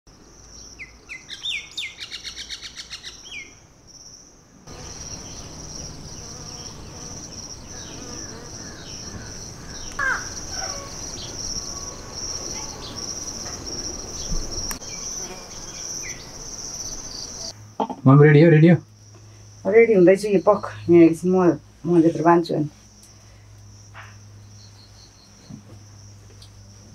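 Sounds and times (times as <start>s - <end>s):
small birds chirping and trilling: 0.3s - 17.5s
high-pitched insect drone: 4.7s - 17.6s.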